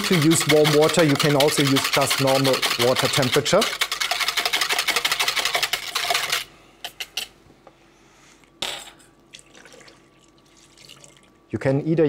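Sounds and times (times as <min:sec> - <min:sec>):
whisk clicking in mixing bowl: 0:00.0 - 0:07.0.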